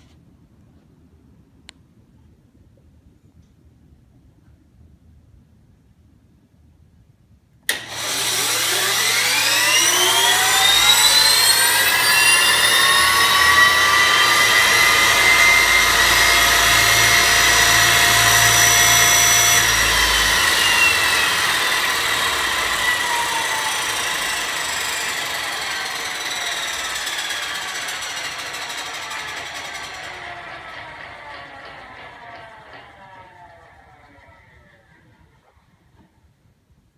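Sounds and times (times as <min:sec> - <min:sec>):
low hum: 0:00.0 - 0:36.3
turbine engine whine: 0:07.7 - 0:36.1.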